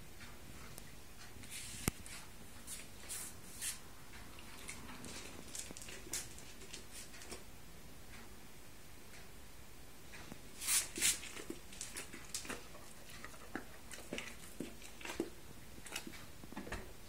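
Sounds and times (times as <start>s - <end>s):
dog chewing and licking: 10.9s - 16.3s.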